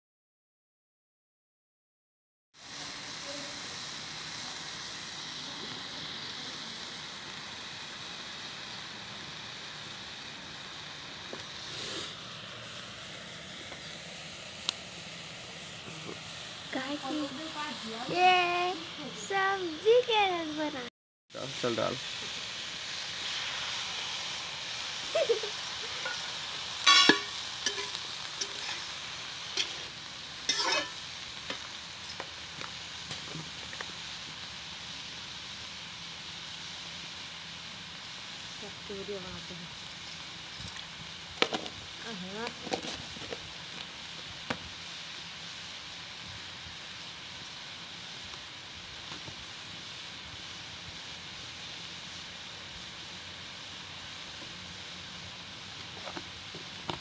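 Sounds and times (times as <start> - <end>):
cabbage sizzling in metal pan: 2.6 - 57.0
spatula scraping a pan: 25.9 - 29.0, 29.6 - 31.0.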